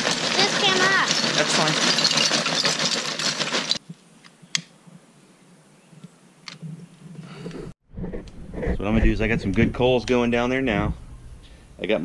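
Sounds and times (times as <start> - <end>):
charcoal clattering into grill: 0.0 - 3.8.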